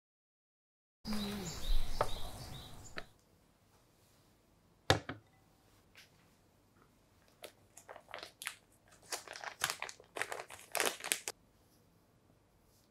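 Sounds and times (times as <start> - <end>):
bird chirps: 1.1 - 3.2.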